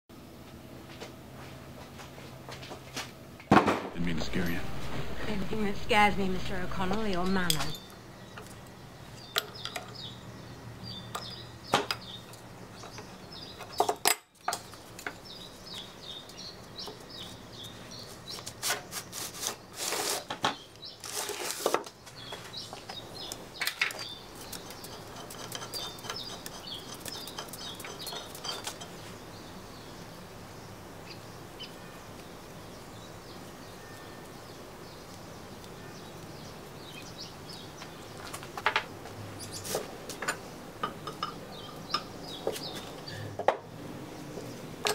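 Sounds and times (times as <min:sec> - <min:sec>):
tools clinking on cast iron: 0:06.9 - 0:08.0, 0:24.8 - 0:29.0, 0:40.2 - 0:42.1.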